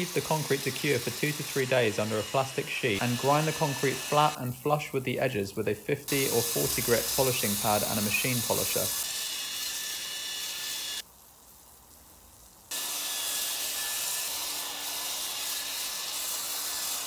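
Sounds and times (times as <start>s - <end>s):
polisher grinding concrete: 0.0s - 4.4s, 6.1s - 9.1s.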